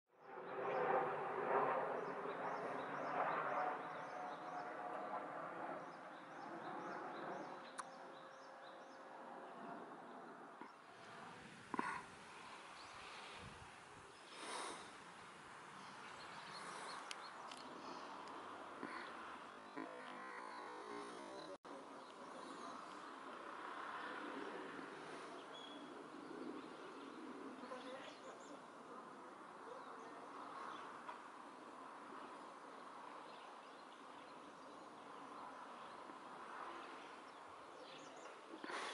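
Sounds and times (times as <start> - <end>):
faint outdoor hum: 0.3 - 38.9.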